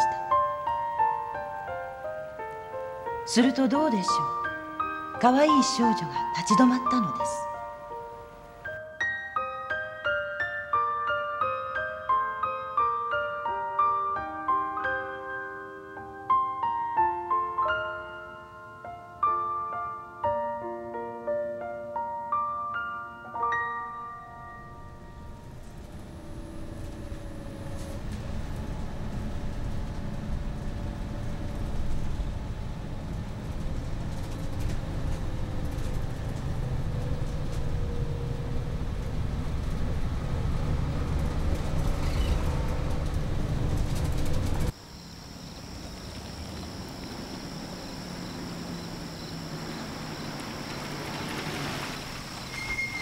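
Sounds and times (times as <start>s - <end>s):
distant engine hum: 24.6s - 53.0s
bus engine and road rumble: 24.7s - 53.0s.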